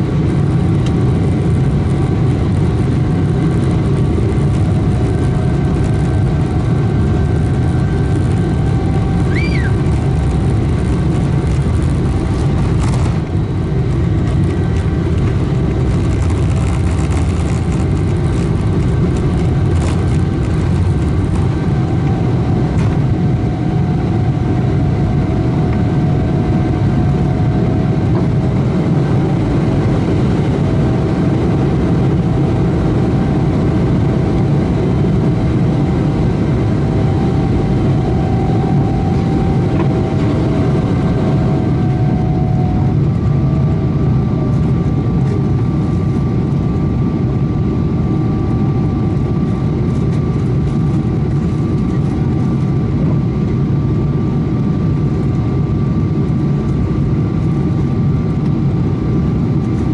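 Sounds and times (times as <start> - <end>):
jet engines droning: 0.0 - 59.9
wheels knocking and rattling on runway: 9.3 - 21.6.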